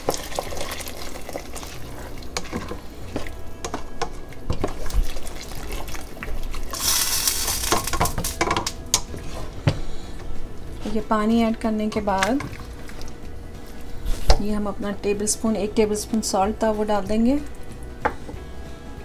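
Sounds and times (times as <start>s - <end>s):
water poured into hot pot: 6.7s - 8.0s.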